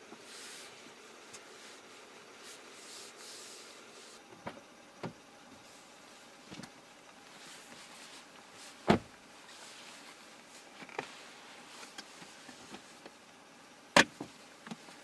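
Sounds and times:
clothing rustling: 0:05.6 - 0:13.1
car door thudding shut: 0:08.8 - 0:09.1.

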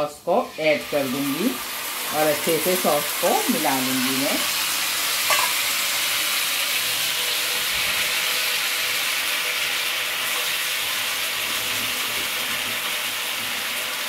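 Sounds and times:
garlic sizzling in hot oil: 0:00.0 - 0:14.0
spatula stirring in pan: 0:05.2 - 0:05.8.

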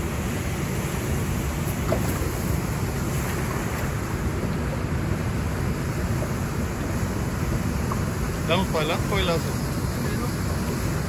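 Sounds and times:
river churning: 0:00.0 - 0:11.0
waterfall rushing: 0:02.3 - 0:11.0.

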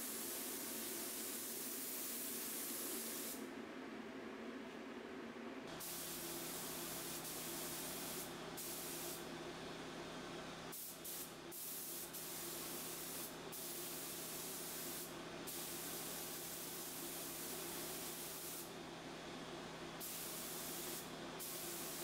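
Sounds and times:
spray gun hissing: 0:00.0 - 0:03.4, 0:05.8 - 0:09.2, 0:10.7 - 0:18.7, 0:20.0 - 0:22.0.

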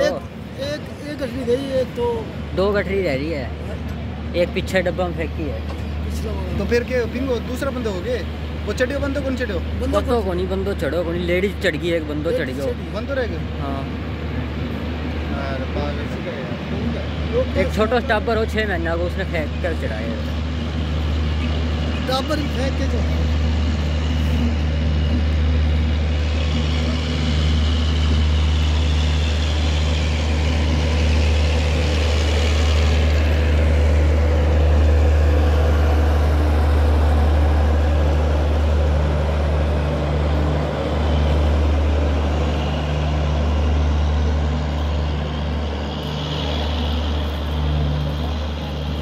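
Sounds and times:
diesel generator: 0:00.0 - 0:49.0
train rolling past: 0:00.0 - 0:49.0
wheel and rail noise: 0:00.0 - 0:49.0.

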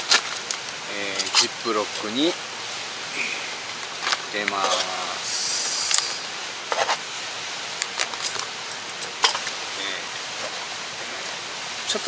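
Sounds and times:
background hiss: 0:00.0 - 0:12.0.

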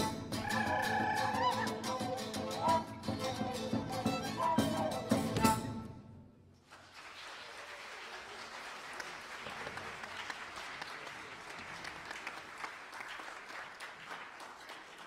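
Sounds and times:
flutes and violin playing folk music: 0:00.0 - 0:06.0
audience applause: 0:06.6 - 0:15.0.

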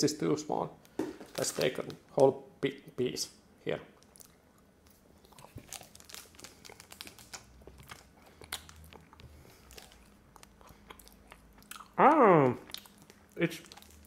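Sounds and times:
plastic wrapper crinkling: 0:00.9 - 0:02.3, 0:05.3 - 0:10.6
chocolate crunching: 0:04.0 - 0:14.0.

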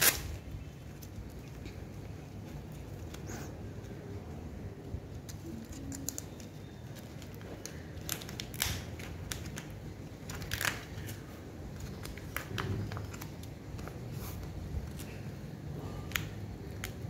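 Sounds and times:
plastic pouch crinkling: 0:05.4 - 0:14.0.

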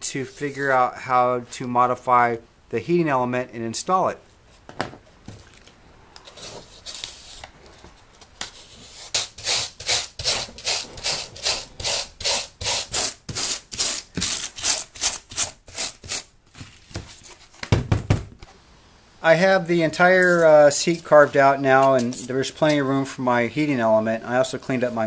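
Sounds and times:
foam being scraped by hand: 0:08.5 - 0:16.3.

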